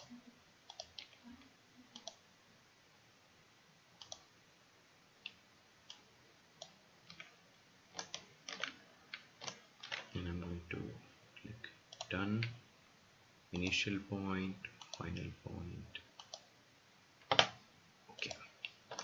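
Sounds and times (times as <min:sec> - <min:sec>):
faint mouse clicks: 0:00.0 - 0:02.2, 0:04.0 - 0:04.3, 0:05.2 - 0:10.1, 0:11.4 - 0:12.6, 0:14.6 - 0:15.3, 0:16.2 - 0:16.5, 0:17.2 - 0:19.0.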